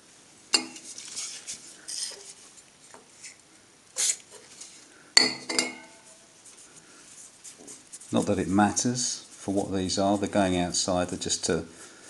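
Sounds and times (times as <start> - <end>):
metal plates clinking: 5.2 - 6.1.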